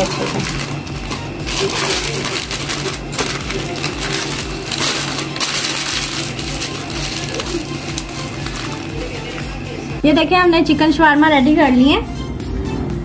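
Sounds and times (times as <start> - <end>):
paper crinkling and rustling: 0.0 - 9.6.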